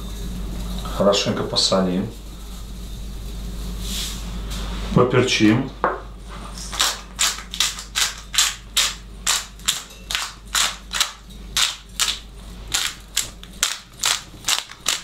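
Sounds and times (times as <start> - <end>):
pepper mill grinding: 6.6 - 15.0.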